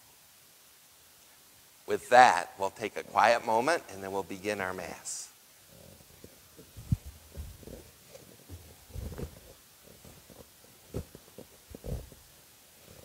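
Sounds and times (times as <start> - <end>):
body movement: 5.6 - 13.0.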